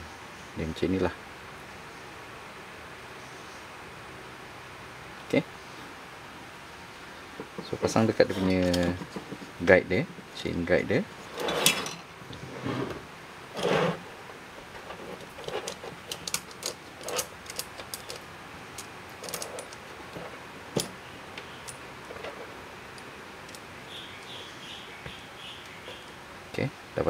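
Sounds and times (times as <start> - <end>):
saw chain clinking and rattling: 11.4 - 12.1, 15.3 - 18.2, 18.8 - 19.9.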